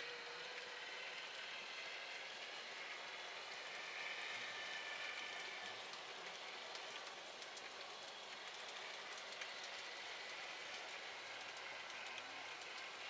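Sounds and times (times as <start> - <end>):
faint clicks: 5.1 - 13.0.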